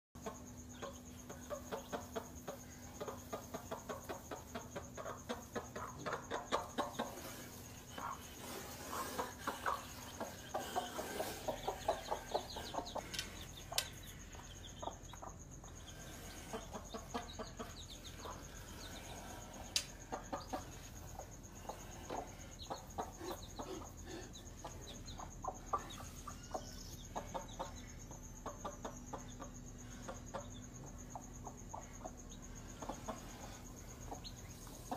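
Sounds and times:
chicks cheeping: 0:00.2 - 0:34.9
hen clucking: 0:00.2 - 0:34.9.

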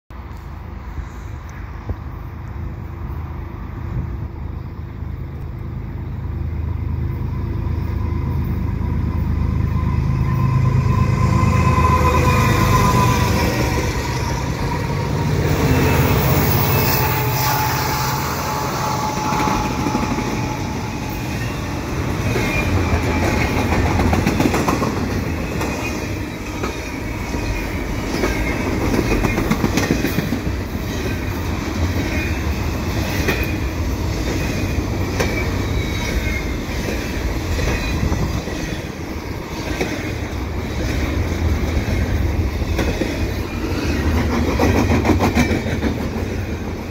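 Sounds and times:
diesel locomotive engine rumble: 0:00.1 - 0:46.9
faint high wheel squeals: 0:06.7 - 0:23.7
train wheels clacking over rails: 0:11.6 - 0:46.9.

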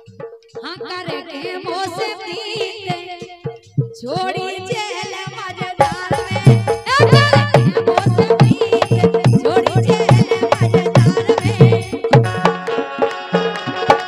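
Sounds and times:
drum beat: 0:00.0 - 0:14.0
woman singing: 0:00.6 - 0:12.8
harmonium: 0:04.2 - 0:14.0.

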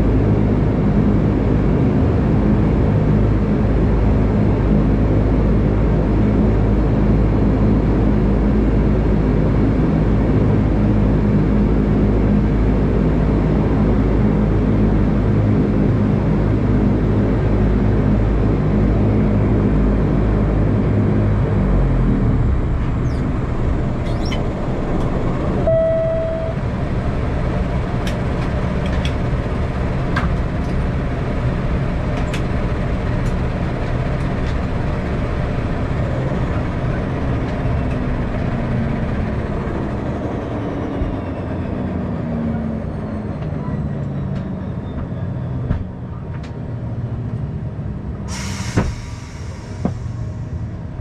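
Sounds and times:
turboprop engine spooling down: 0:00.0 - 0:45.4, 0:47.4 - 0:51.0
loud hiss: 0:48.3 - 0:50.5.

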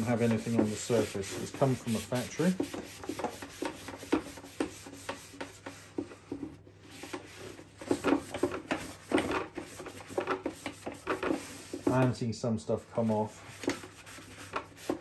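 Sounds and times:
paper towel wiping grill plates: 0:00.0 - 0:12.0.

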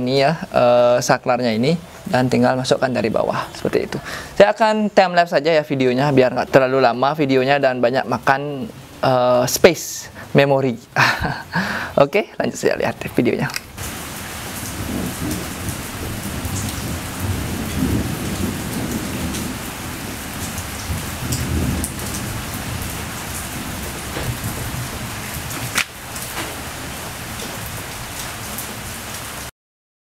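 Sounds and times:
steady rain: 0:00.0 - 0:29.5
low rumbling: 0:14.6 - 0:28.5.

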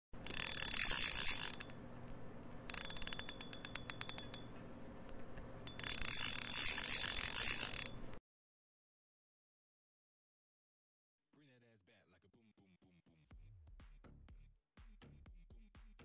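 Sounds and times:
fishing reel drag ratcheting: 0:00.2 - 0:08.2.

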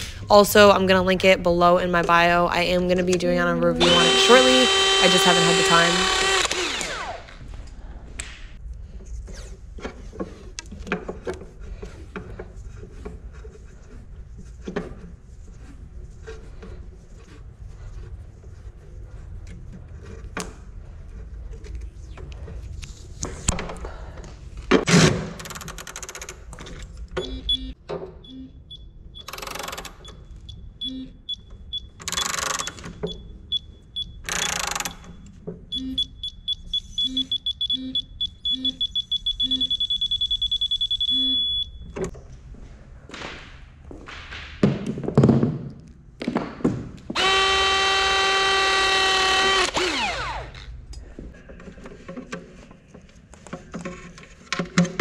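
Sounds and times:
torque wrench beeping: 0:03.8 - 0:07.2, 0:27.2 - 0:41.9
loud buzz dropping in pitch: 0:03.8 - 0:07.3.

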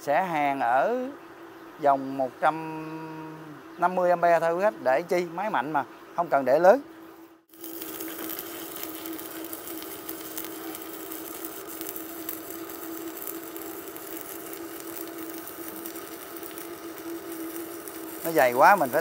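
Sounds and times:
steady low hum: 0:00.0 - 0:19.0
welding arc crackling: 0:07.5 - 0:19.0.

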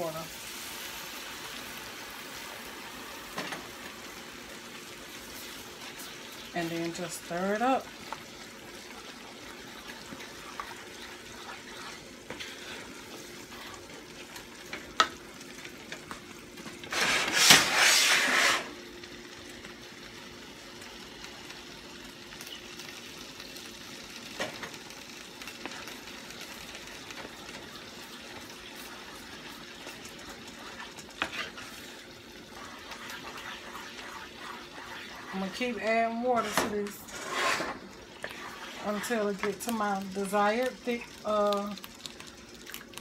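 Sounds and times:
water sizzling in hot pan: 0:00.0 - 0:43.0
wooden spoon stirring gravy: 0:08.0 - 0:16.2, 0:25.6 - 0:41.2.

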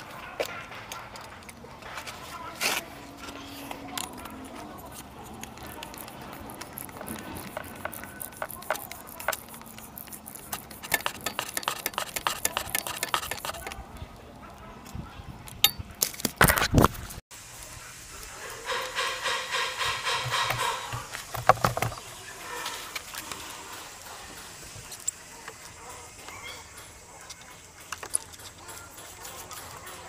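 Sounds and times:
metal parts and tools clinking: 0:03.5 - 0:13.8, 0:24.8 - 0:30.0.

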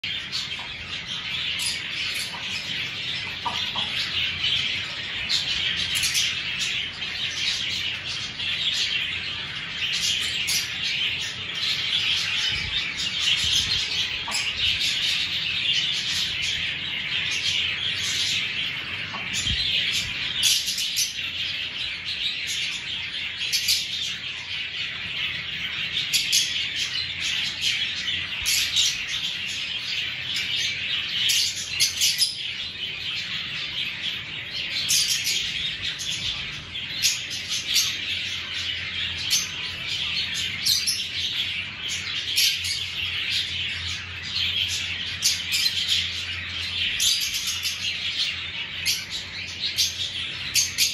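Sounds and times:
lovebirds chattering: 0:00.0 - 0:50.9.

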